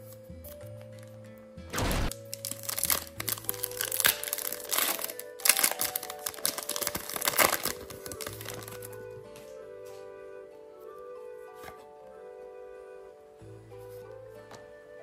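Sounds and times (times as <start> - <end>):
soft background music: 0.0 - 15.0
foil wrapper crinkling: 2.1 - 9.0.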